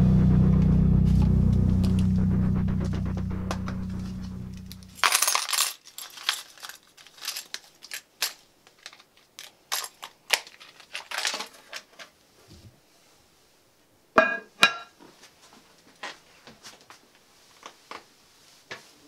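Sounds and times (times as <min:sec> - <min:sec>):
background music: 0:00.0 - 0:05.0.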